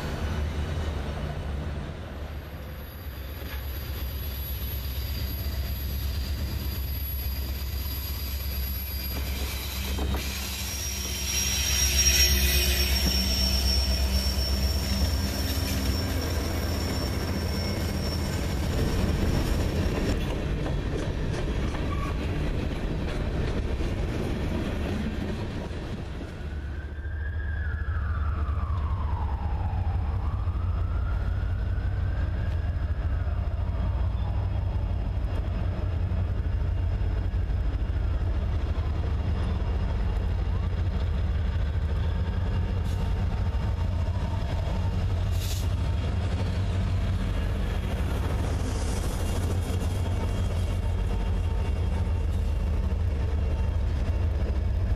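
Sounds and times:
freight cars rolling on rails: 0.0s - 26.7s
diesel locomotive rumble: 0.0s - 27.0s, 27.6s - 54.9s
high-pitched wheel squeal: 2.7s - 19.2s.

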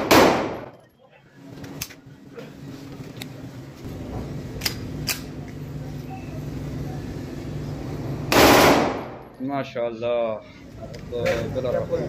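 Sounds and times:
pistol clicks: 4.6s - 5.3s.

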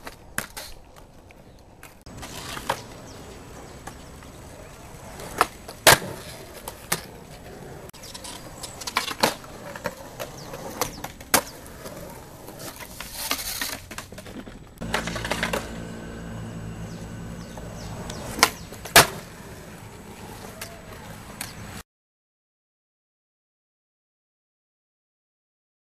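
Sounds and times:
skateboard clacks on concrete: 0.0s - 16.0s, 17.5s - 21.7s
low engine hum: 14.8s - 21.8s.

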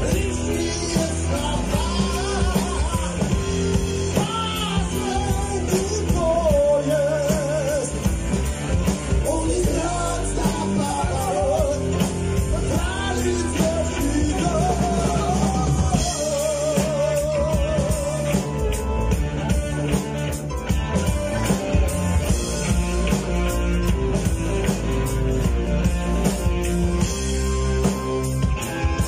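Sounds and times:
lead vocal singing: 0.0s - 8.3s, 9.1s - 18.9s
rock band playing live: 0.0s - 29.0s.

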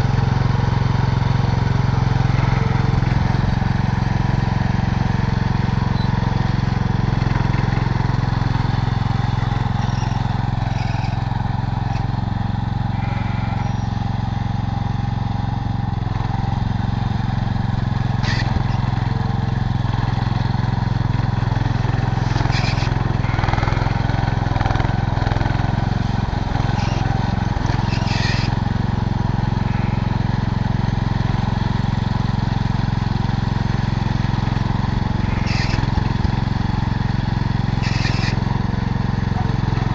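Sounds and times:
tractor engine running: 0.0s - 39.9s
loader scooping sand: 12.8s - 13.9s, 18.0s - 31.2s.

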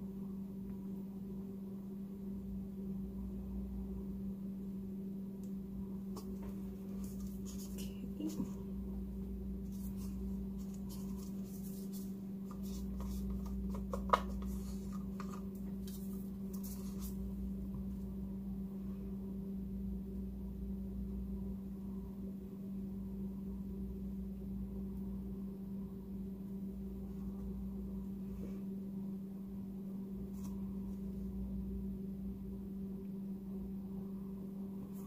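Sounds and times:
steady electrical hum: 0.0s - 35.0s
faint rustling: 9.6s - 17.5s.

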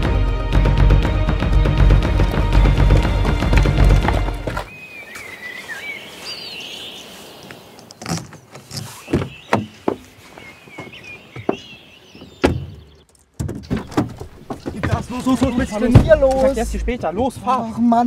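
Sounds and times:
birds chirping: 1.7s - 17.8s
car door knocks and clicks: 12.4s - 12.8s, 13.4s - 16.4s.

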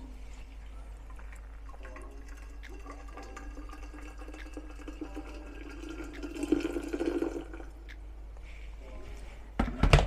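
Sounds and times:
water pouring into glass bottle: 1.0s - 7.8s.

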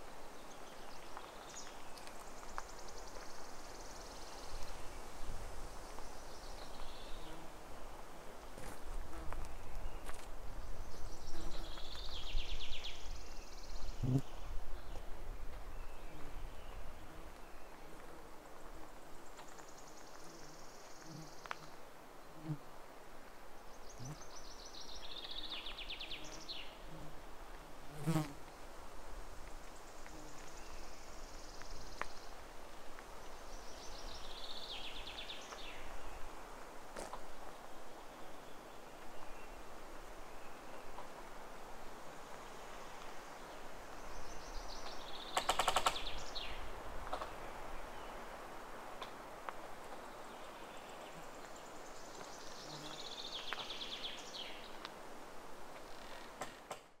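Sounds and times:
steady outdoor hiss: 0.0s - 57.0s
songbirds singing: 9.1s - 21.8s, 50.0s - 54.9s.

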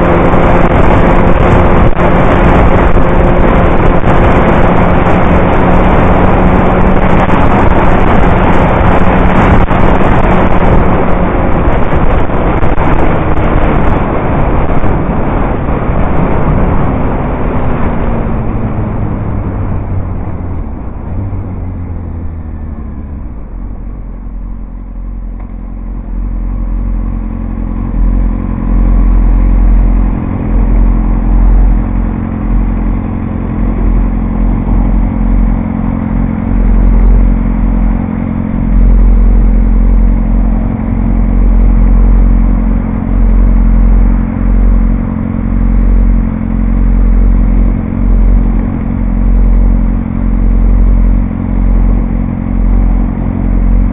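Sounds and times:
uneven low rumble: 0.0s - 53.9s
motorcycle engine idling: 20.3s - 53.9s.

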